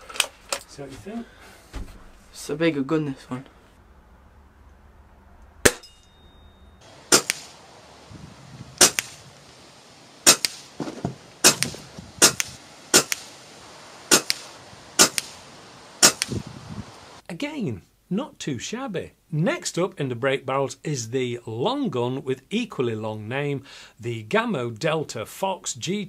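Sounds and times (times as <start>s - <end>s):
air rifle shots: 6.8s - 7.6s, 8.8s - 9.4s, 10.2s - 13.4s, 14.1s - 16.5s.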